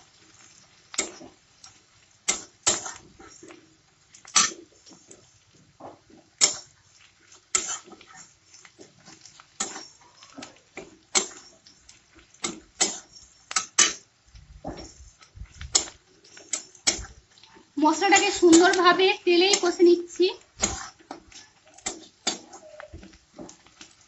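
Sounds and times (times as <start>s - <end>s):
metal spatula scraping a wok: 0.0s - 24.0s
onions frying in oil: 0.0s - 24.0s.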